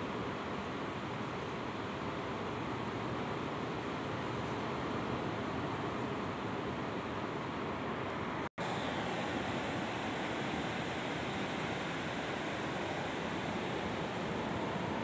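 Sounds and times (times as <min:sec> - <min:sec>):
surf rushing: 0:08.2 - 0:15.0.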